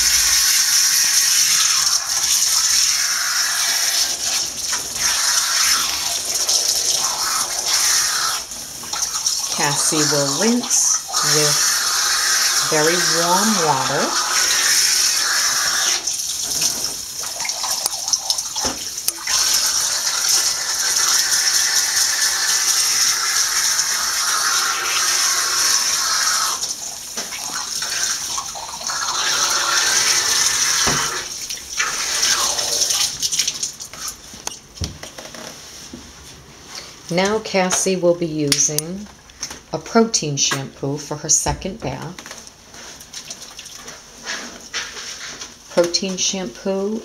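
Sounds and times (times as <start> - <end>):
shower sprayer spraying water: 0.0 - 34.4.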